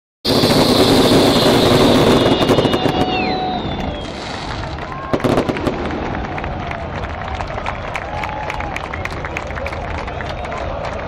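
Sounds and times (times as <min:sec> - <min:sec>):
fireworks hissing and whistling: 0:00.3 - 0:05.7
fireworks bangs: 0:00.3 - 0:07.7
fireworks crackling: 0:00.3 - 0:07.8.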